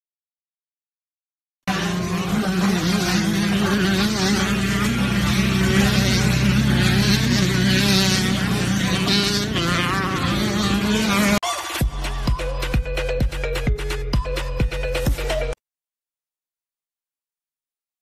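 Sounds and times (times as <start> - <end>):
steady low hum: 1.7 - 11.4.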